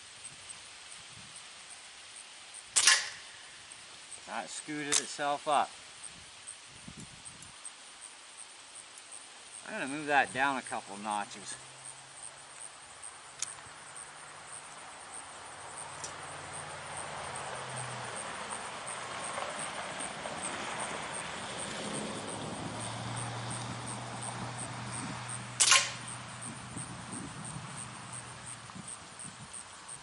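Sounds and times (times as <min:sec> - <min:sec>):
air rifle shot: 0:02.8 - 0:03.4, 0:25.6 - 0:26.0
wind rushing: 0:26.3 - 0:29.6.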